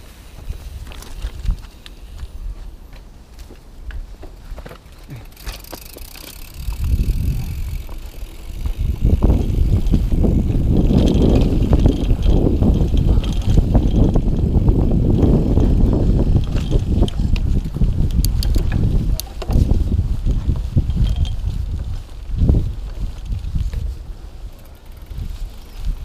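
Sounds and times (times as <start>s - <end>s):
bike tyre rumble: 0.0s - 26.0s
bike rattling clicks: 0.4s - 2.4s, 3.4s - 26.0s.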